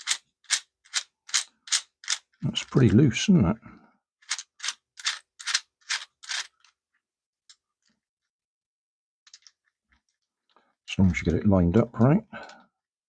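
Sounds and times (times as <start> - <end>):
plastic puzzle cube clicks: 0.0 - 2.8, 4.2 - 6.7.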